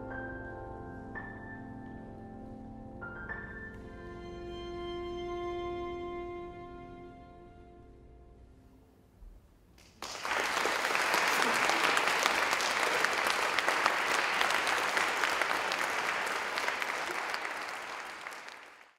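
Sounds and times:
audience applauding: 9.8s - 18.9s.

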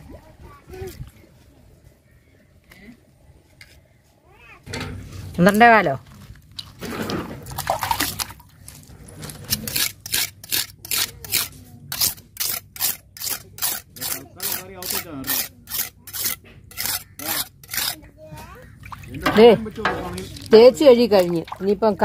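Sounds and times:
wet scrubbing strokes: 6.7s - 18.0s.

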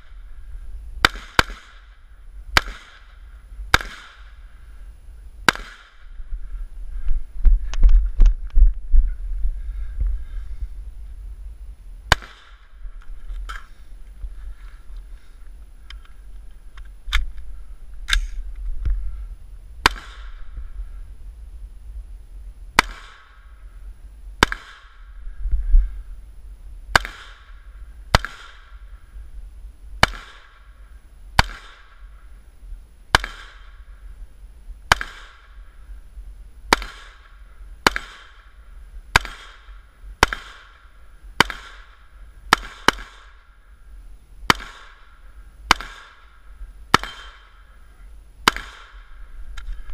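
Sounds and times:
rifle shots with echo: 1.0s - 4.5s, 5.4s - 6.2s, 12.1s - 12.8s, 19.8s - 20.6s, 22.8s - 23.6s, 24.4s - 25.2s, 26.9s - 28.9s, 30.0s - 30.8s, 31.4s - 32.2s, 33.1s - 34.0s, 34.9s - 35.8s, 36.7s - 43.7s, 44.4s - 49.3s.

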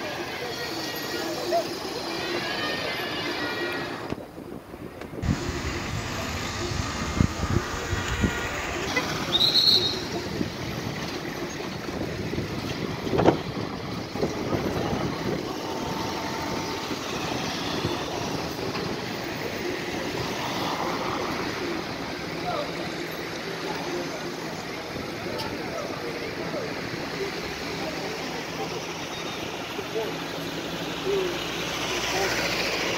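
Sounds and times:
cars and coaches driving past: 0.0s - 32.9s
brief high squeal: 9.2s - 10.2s.

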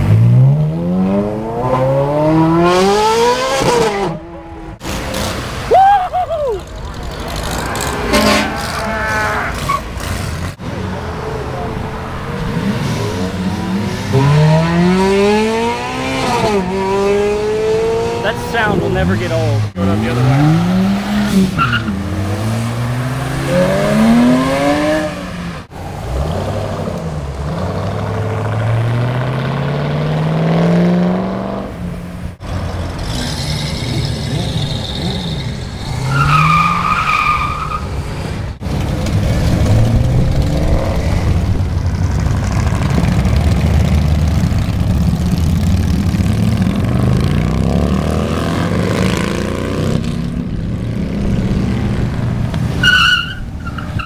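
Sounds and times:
cars accelerating hard: 0.0s - 5.8s, 6.5s - 54.0s.

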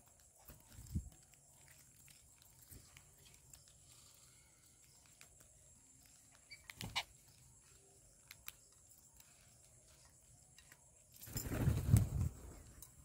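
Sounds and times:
birds pecking on concrete: 0.0s - 13.0s.

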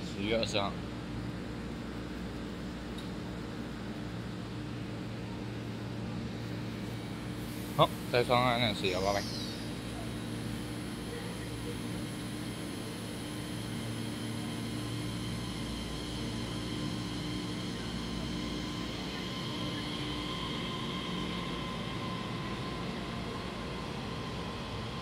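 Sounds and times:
traction motors whining: 6.8s - 25.0s.

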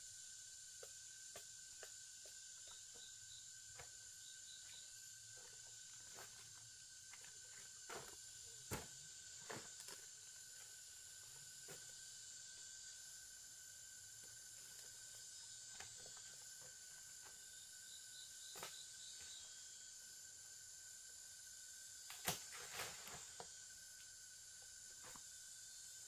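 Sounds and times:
high insect trilling: 0.0s - 22.3s
light hiss: 18.5s - 26.0s.

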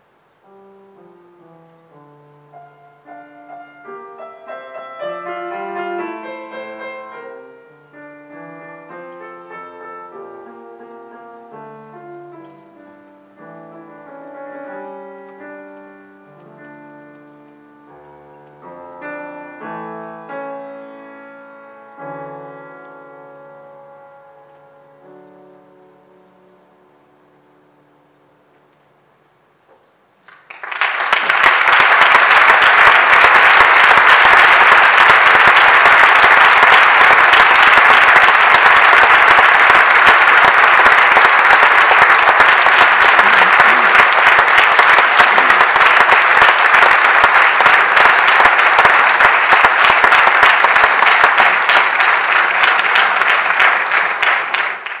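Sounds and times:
audience applause: 30.2s - 55.0s.

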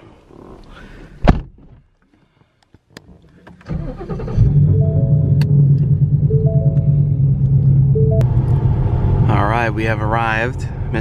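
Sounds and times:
car engine starting and idling: 3.4s - 11.0s
stepped chime tones: 4.7s - 5.4s, 6.2s - 7.2s, 7.9s - 8.2s.

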